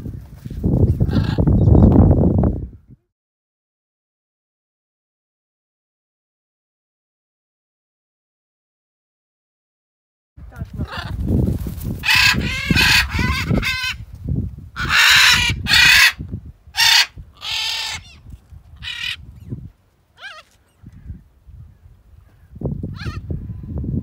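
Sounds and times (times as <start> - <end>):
wind rumbling on microphone: 0.0 - 3.1, 10.4 - 24.0
macaws squawking: 12.0 - 14.0, 14.8 - 16.2, 16.8 - 19.3, 20.2 - 21.0, 22.9 - 23.2.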